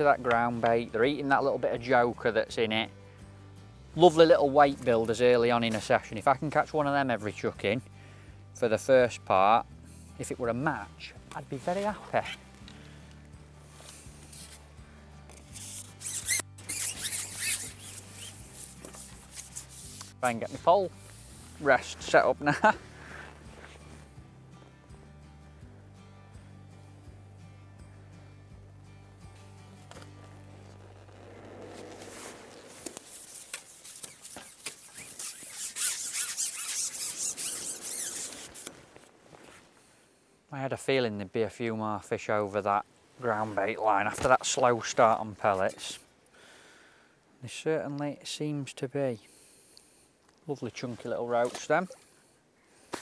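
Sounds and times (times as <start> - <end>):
low sustained background music: 0.0 - 33.4
fishing pole scraping over rest: 13.6 - 14.7, 15.3 - 22.3, 29.9 - 39.7
high chirps and squeaks: 15.4 - 19.8, 33.1 - 38.8.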